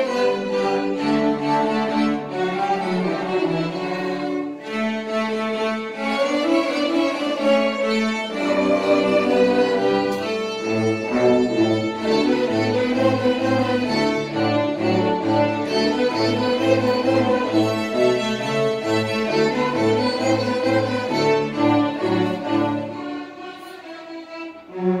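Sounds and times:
string orchestra playing: 0.0s - 25.0s.

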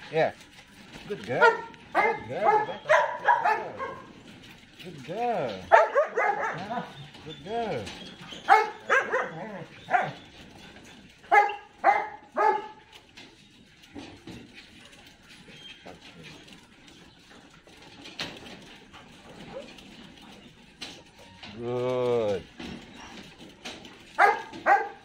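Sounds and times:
dog yelping: 1.4s - 4.2s, 5.6s - 12.9s, 19.3s - 19.9s, 24.1s - 25.0s.

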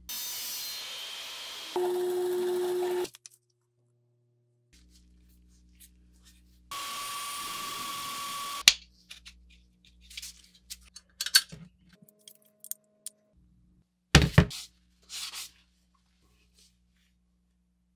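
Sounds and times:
electric drill whining: 0.8s - 3.1s, 6.7s - 8.6s.

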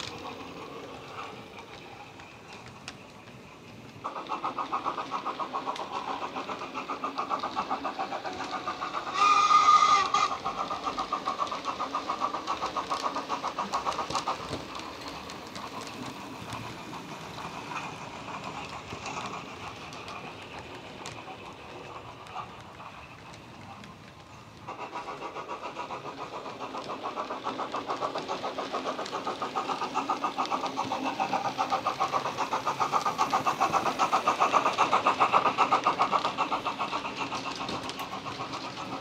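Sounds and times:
steady running sound with clicks: 0.0s - 39.0s
steam locomotive chuffing: 0.0s - 39.0s
locomotive whistle blast: 9.2s - 10.3s.

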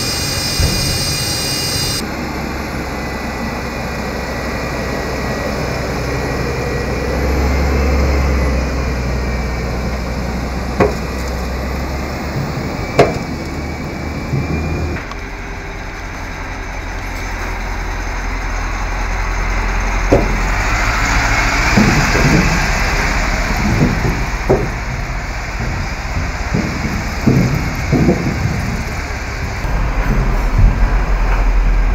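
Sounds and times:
military vehicle engines driving past: 0.0s - 31.9s
vehicle clanking on metal ramp: 10.5s - 31.9s
sharp knocks: 21.5s - 31.4s.

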